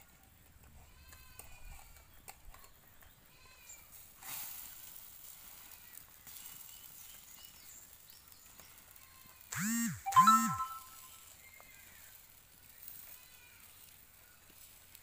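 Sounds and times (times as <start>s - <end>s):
faint animal bleats: 13.0s - 13.8s.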